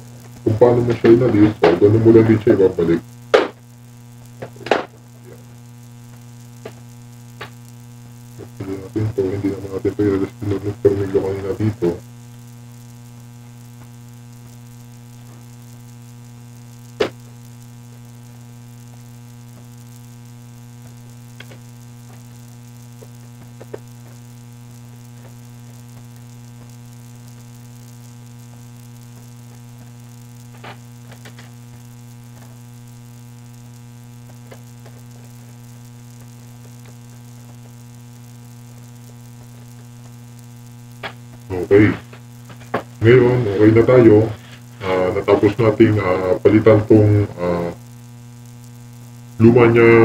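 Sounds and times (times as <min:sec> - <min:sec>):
electrical mains hum: 0:00.0 - 0:50.0
burst of noise: 0:14.3 - 0:45.8.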